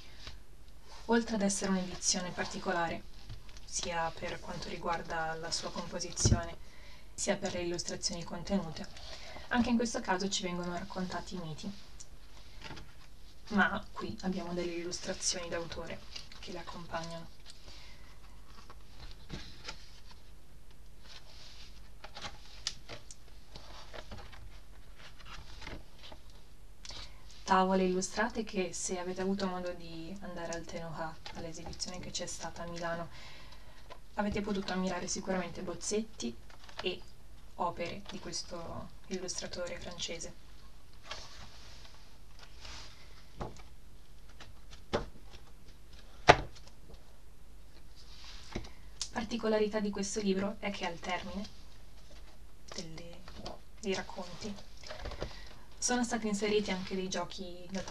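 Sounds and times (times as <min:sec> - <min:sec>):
book pages turning: 0:15.0 - 0:26.4.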